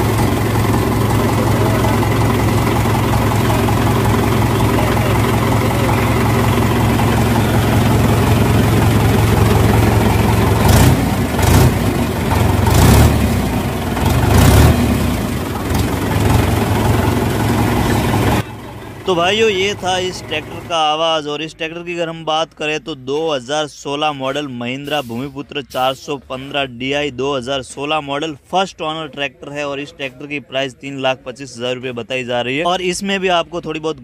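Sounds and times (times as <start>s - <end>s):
tractor diesel engine running: 0.0s - 23.1s.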